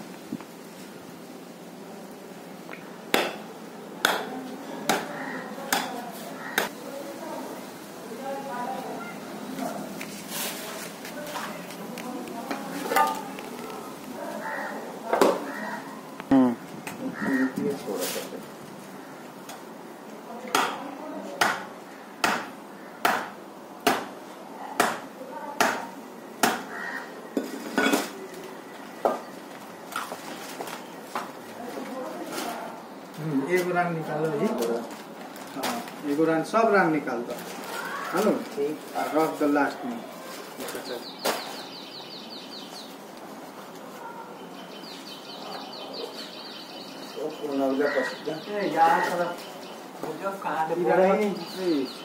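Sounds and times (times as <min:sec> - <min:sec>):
knife chopping on a board: 0:04.0 - 0:04.3, 0:21.4 - 0:24.1, 0:24.8 - 0:25.0, 0:25.6 - 0:26.7
small bird calling: 0:37.6 - 0:38.7, 0:44.0 - 0:52.0.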